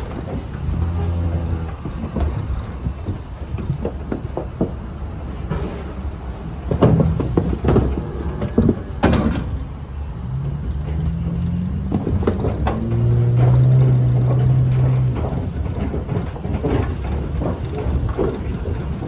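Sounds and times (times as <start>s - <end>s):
metal trailer knocks and clanks: 0.0s - 19.0s
cattle mooing: 0.6s - 2.0s.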